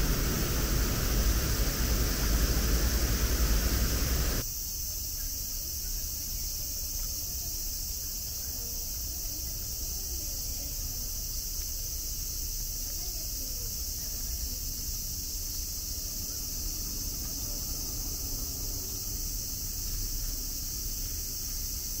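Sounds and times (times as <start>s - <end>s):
rushing noise with deep rumble: 0.0s - 4.4s
high-pitched insect song: 0.0s - 22.0s.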